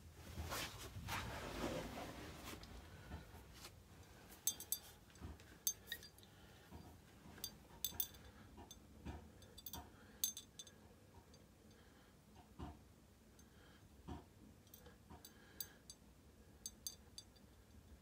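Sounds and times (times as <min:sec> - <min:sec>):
glass bottle clinks: 0:04.5 - 0:05.0, 0:07.4 - 0:08.2, 0:09.4 - 0:10.7.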